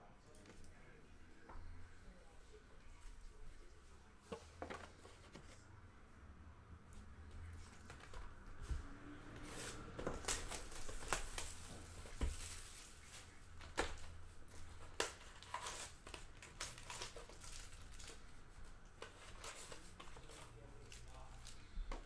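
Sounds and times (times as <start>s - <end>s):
cards rustling: 9.4s - 22.0s
plastic wrappers crinkling and tearing: 9.5s - 21.7s.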